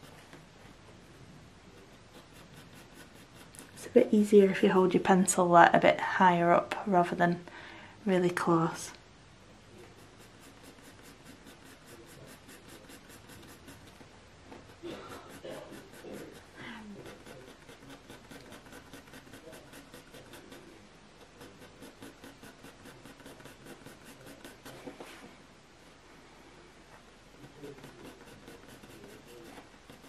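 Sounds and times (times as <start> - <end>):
pencil scratching on paper: 1.8 - 4.1, 9.8 - 25.3, 27.4 - 30.0.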